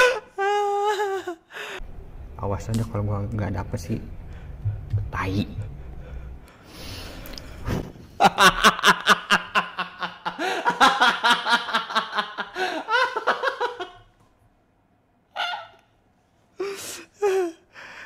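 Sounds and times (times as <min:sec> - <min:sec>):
man laughing hard: 0:00.0 - 0:01.5, 0:08.2 - 0:14.1.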